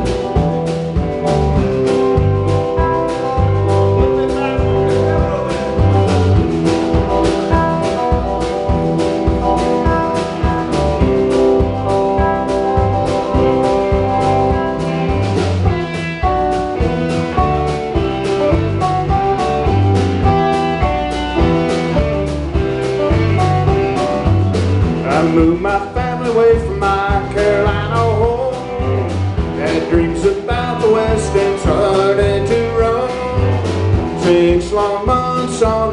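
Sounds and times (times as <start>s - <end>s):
bass guitar: 0.0s - 35.9s
drum kit beat: 0.0s - 35.9s
electric guitars: 0.0s - 35.9s.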